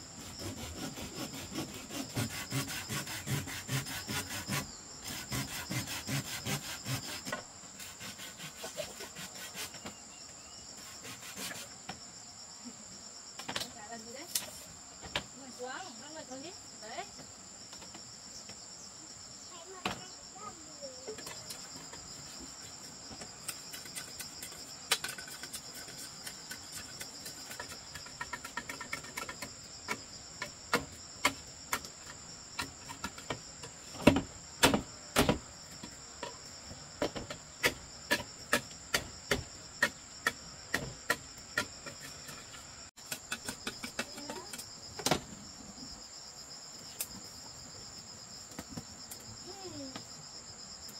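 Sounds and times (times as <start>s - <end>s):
high chorus of insects: 0.0s - 50.9s
sharp knocks: 34.0s - 35.4s.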